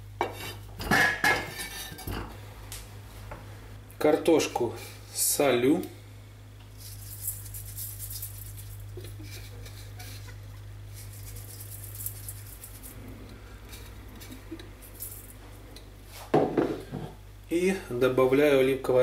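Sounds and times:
salt grains pattering: 6.8 - 10.3, 10.9 - 13.0, 13.6 - 15.4.

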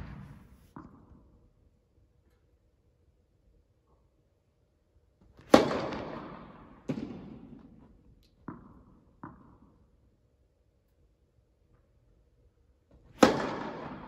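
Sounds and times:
racket striking tennis ball: 0.0 - 1.0, 5.4 - 7.4, 13.2 - 14.0
ball hitting far away: 0.0 - 1.2
tennis ball bounces: 8.4 - 9.7.

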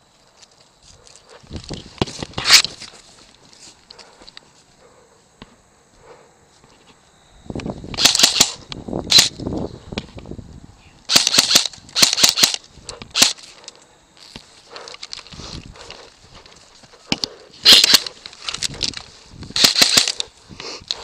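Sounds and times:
airsoft guns firing bursts: 8.0 - 9.3, 11.1 - 13.4, 17.6 - 18.2, 19.6 - 20.3.

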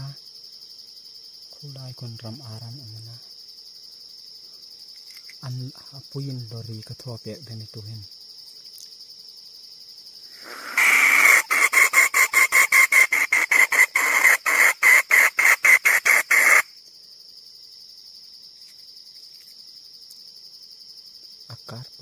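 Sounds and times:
crickets trilling: 0.0 - 22.0
jungle fowl hen cackling: 10.3 - 16.7.

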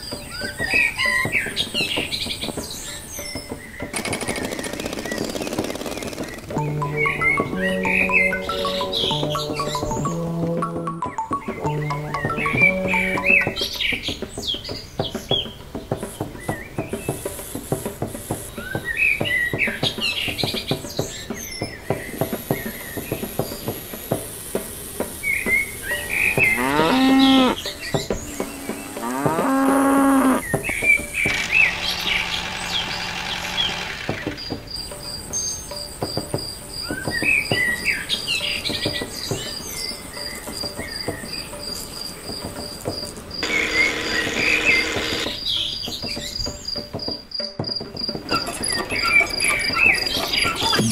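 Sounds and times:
birds chirping: 0.0 - 50.9
rhythmic knocking: 0.0 - 50.9
hiss: 16.0 - 19.4, 20.0 - 26.6
insects chirping: 21.9 - 50.9.

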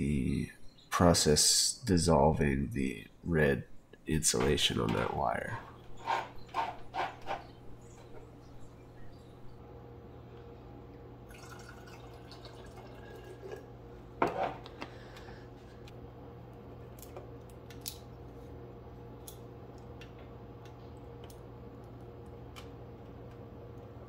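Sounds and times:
steady low hum: 0.0 - 24.0
jar bubbling: 11.3 - 13.7.

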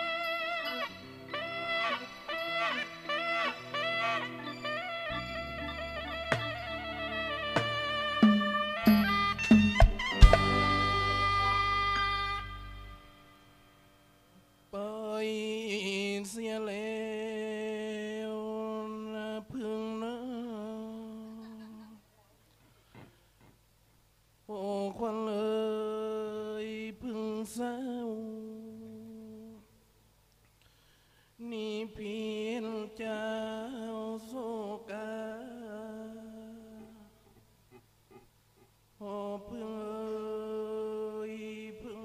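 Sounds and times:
man singing in a chanting style: 14.8 - 22.0, 24.5 - 29.7, 31.4 - 37.4, 39.0 - 42.0
person singing alone: 31.4 - 37.3, 39.0 - 42.0.

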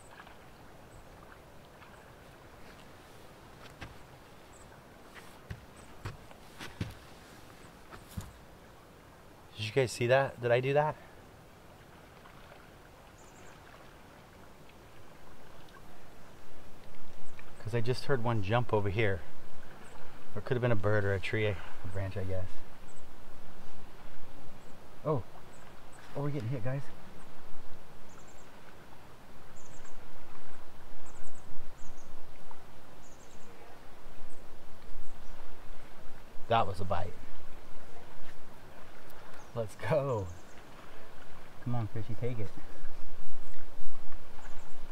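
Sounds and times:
water lapping: 0.0 - 9.7, 10.3 - 44.9
soft thuds: 5.1 - 7.2, 7.9 - 8.4.

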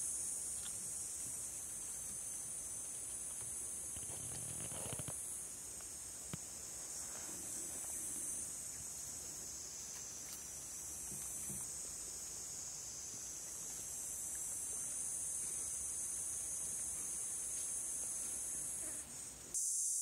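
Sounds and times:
insects chorus: 0.0 - 20.0.

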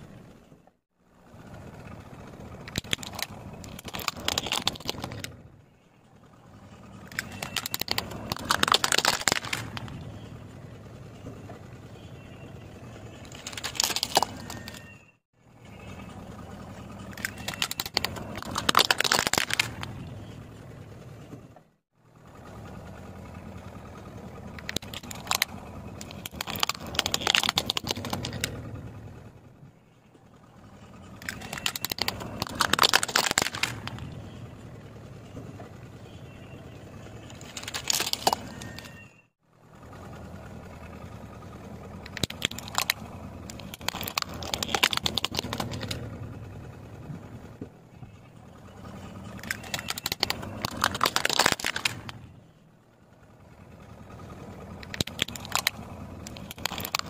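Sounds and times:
car engine running low: 0.0 - 57.0
plastic toys cracking under a tyre: 2.6 - 5.4, 7.0 - 10.0, 13.1 - 14.9, 17.0 - 20.1, 24.6 - 28.8, 31.1 - 34.2, 37.2 - 39.0, 42.0 - 46.4, 49.0 - 52.3, 54.8 - 57.0.

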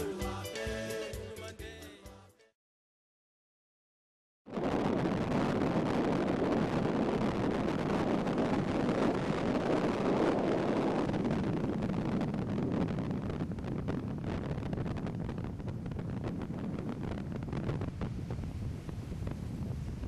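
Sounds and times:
wind buffeting microphone: 4.5 - 20.0.

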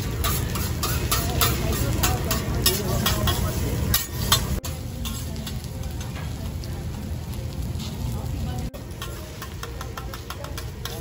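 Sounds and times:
metal spatula clinking on griddle: 0.0 - 6.3, 8.9 - 11.0
fried rice sizzling: 0.0 - 11.0.

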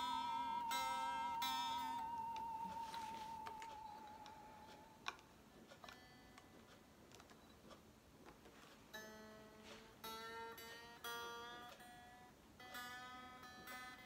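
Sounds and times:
faint electric guitar string plucked: 0.0 - 5.0.

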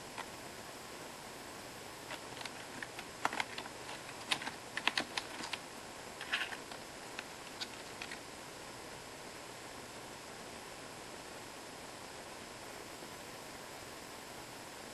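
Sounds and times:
keyboard keys clicking: 2.1 - 5.6, 7.5 - 8.2.

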